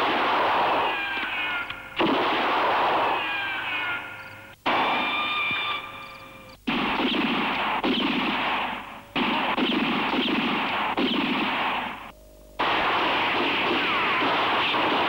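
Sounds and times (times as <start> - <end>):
continuous gunfire volley: 0.0 - 1.2, 2.0 - 3.4, 4.6 - 5.1, 6.6 - 15.0.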